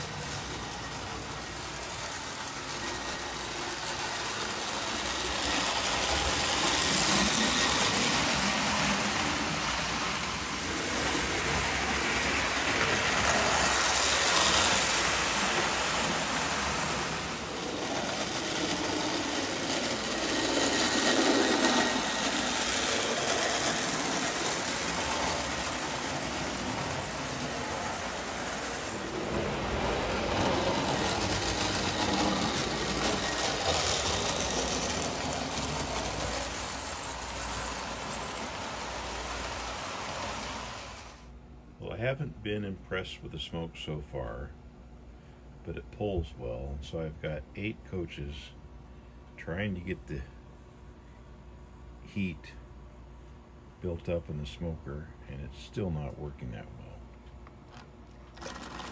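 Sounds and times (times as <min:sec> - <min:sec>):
toy train wheel clatter: 0:00.0 - 0:28.9, 0:30.3 - 0:41.2, 0:57.7 - 0:58.9
toy train motor whirring: 0:00.0 - 0:29.2, 0:29.8 - 0:41.3, 0:57.7 - 0:58.9.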